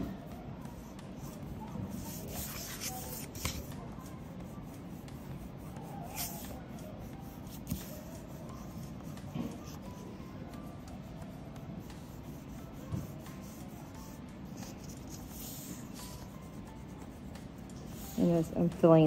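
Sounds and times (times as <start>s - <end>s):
crayon scratching on paper: 0.8s - 18.6s.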